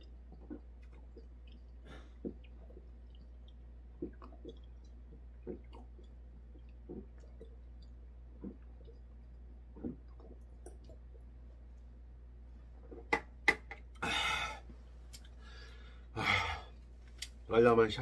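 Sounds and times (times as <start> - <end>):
man gulping from bottle: 0.0 - 11.2.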